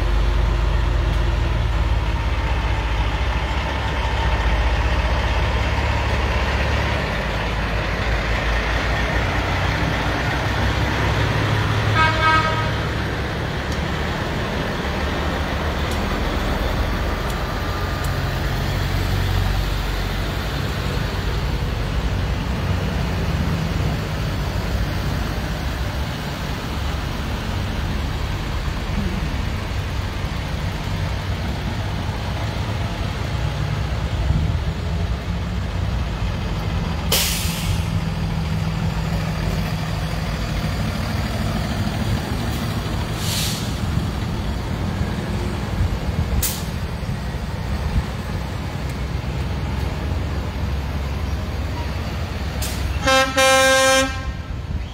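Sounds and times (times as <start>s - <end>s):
truck engines running: 0.0s - 54.9s
air brakes hiss: 37.1s - 38.0s, 43.1s - 44.0s, 52.6s - 53.0s.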